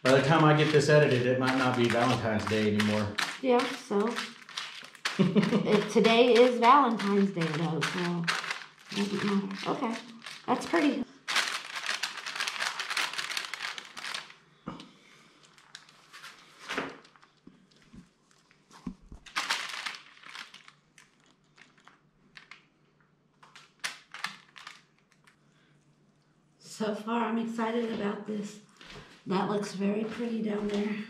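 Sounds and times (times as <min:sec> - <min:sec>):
gritty rustling and crinkling: 0:00.0 - 0:22.8, 0:23.4 - 0:25.4.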